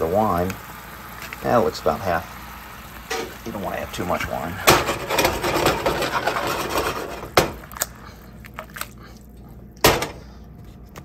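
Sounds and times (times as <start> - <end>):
wine sizzling in frying pan: 0.0 - 7.7.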